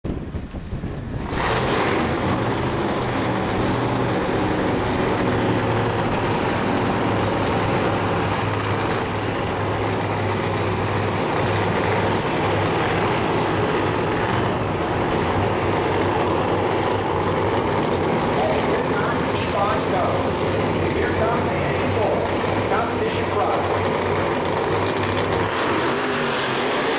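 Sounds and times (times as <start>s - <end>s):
loud racing car engine: 0.8s - 26.9s.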